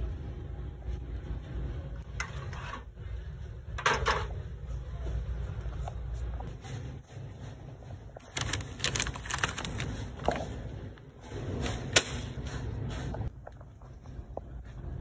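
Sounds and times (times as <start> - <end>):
plastic packet crinkling: 8.2 - 10.4.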